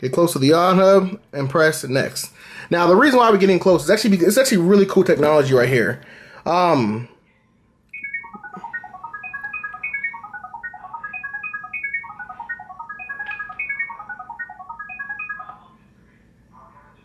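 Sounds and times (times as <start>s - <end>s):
rapid electronic beeps: 8.0s - 15.6s.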